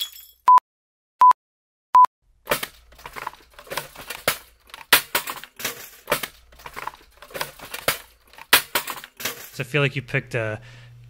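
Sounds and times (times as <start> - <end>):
household objects clattering in basket: 2.5 - 9.6.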